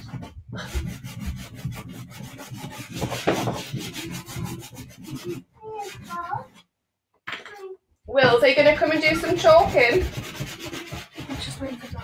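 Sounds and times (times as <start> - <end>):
chalk scratching on tray: 0.0 - 6.6, 8.6 - 12.0.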